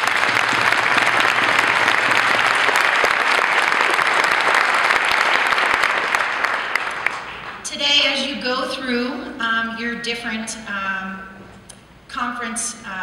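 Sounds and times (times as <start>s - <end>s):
large audience applauding: 0.0s - 7.6s.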